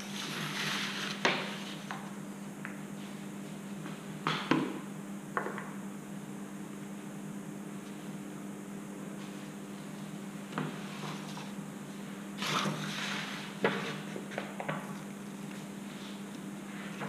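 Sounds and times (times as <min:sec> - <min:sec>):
paper rustling under feet: 0:00.1 - 0:01.8.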